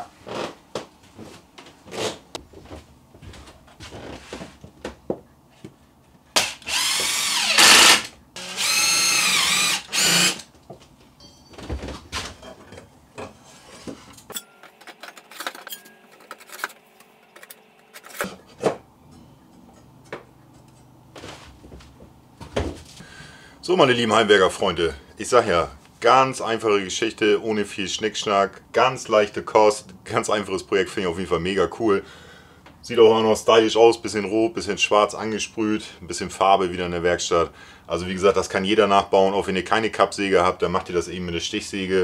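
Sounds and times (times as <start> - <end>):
power drill running: 6.4 - 10.4.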